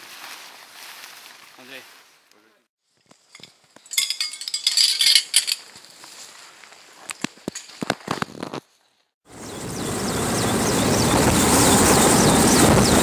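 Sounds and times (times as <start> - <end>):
dishes clinking: 3.3 - 5.6.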